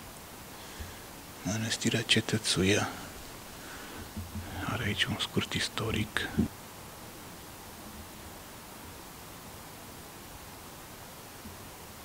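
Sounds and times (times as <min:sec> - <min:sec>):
faint background hiss: 0:00.0 - 0:12.0
soft bump: 0:04.1 - 0:04.6.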